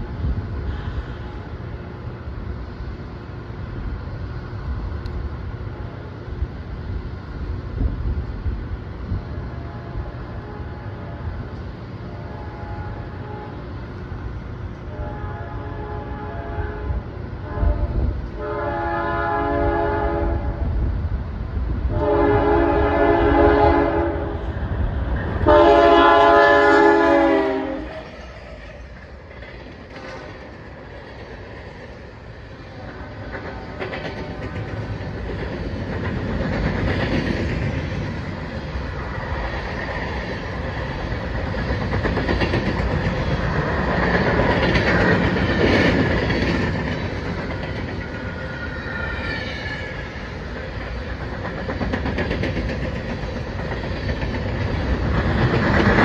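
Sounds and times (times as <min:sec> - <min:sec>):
locomotive horn blasts: 0:09.5 - 0:11.3, 0:12.1 - 0:13.8, 0:14.8 - 0:20.6, 0:21.9 - 0:24.4, 0:25.4 - 0:27.9
train wheels clattering: 0:25.2 - 0:56.0.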